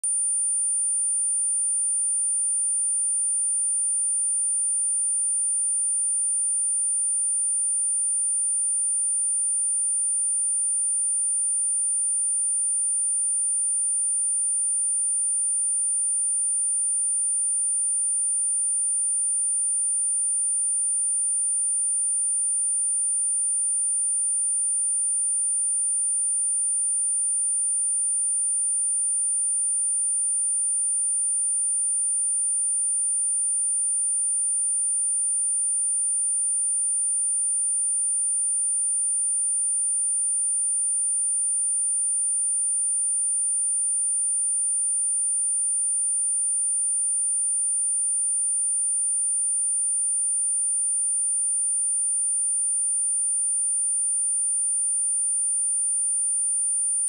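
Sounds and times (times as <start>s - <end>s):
high-pitched sine test tone: 0.0s - 37.7s.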